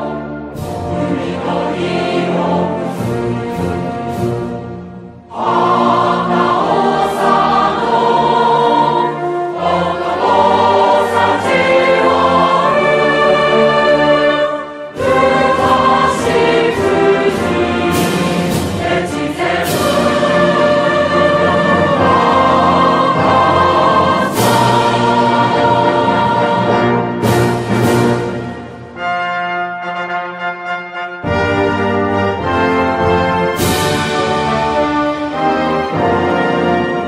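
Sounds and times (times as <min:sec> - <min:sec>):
choir singing sustained chords: 0:00.0 - 0:29.2.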